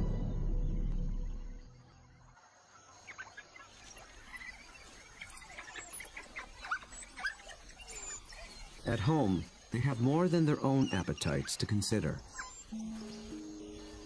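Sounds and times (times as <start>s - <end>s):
music: 0.0s - 1.8s, 12.7s - 14.0s
wild dogs twittering: 2.1s - 14.0s.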